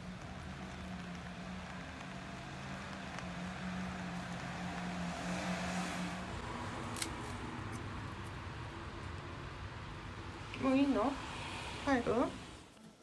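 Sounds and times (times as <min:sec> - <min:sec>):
vehicle engine humming: 0:00.0 - 0:12.8
hiss: 0:10.8 - 0:12.7.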